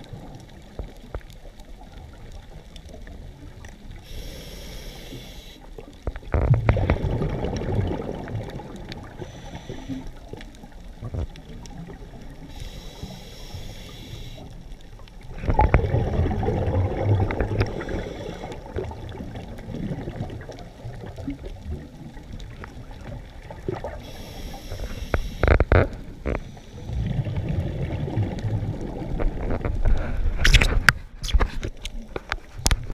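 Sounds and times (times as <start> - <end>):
regulator inhale hiss: 4.0 - 5.7, 9.1 - 10.2, 12.4 - 14.6, 17.6 - 18.7, 24.0 - 25.7, 26.3 - 27.0
exhaust bubbles underwater: 5.8 - 12.6, 15.2 - 24.6, 26.7 - 29.8.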